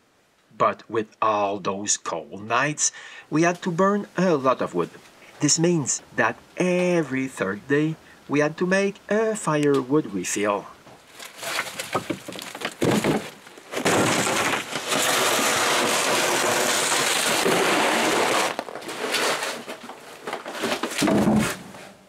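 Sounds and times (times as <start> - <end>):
logs knocking and clunking: 10.9 - 15.0, 20.3 - 21.7
crunching scrape: 11.1 - 22.0.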